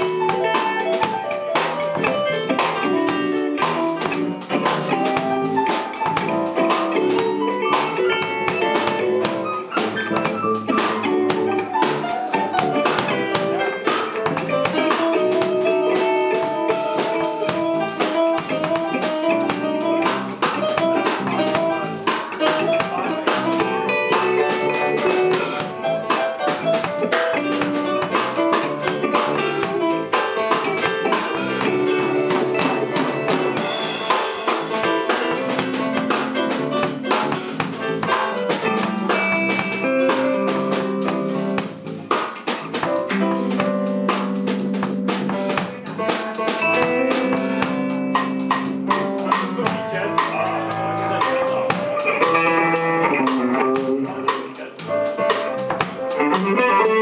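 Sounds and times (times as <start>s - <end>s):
drum kit: 0.0s - 57.0s
electric bass: 0.0s - 57.0s
electric guitar: 0.0s - 57.0s.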